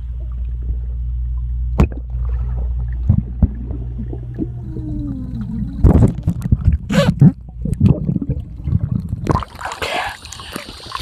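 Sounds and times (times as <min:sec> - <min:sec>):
bubbling gurgles and knocks: 0:00.0 - 0:11.0
muffled underwater rumble: 0:00.0 - 0:11.0
faint falling tone: 0:03.5 - 0:06.6.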